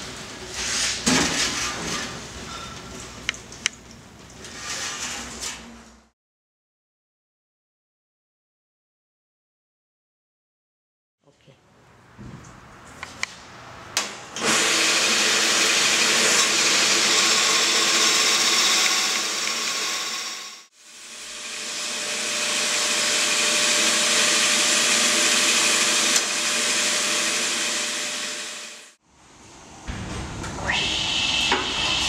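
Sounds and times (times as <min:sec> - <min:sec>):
band saw cutting tile: 0:14.4 - 0:29.0.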